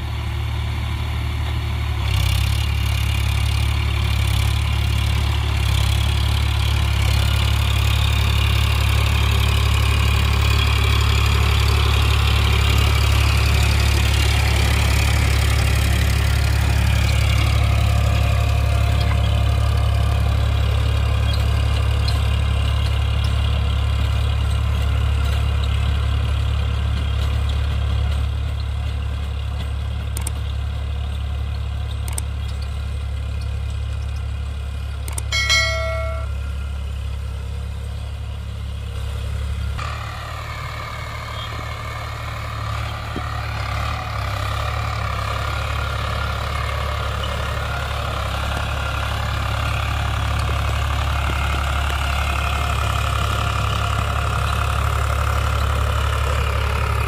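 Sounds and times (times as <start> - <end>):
tractor diesel engine running: 0.0 - 57.0
short ding: 35.3 - 36.6.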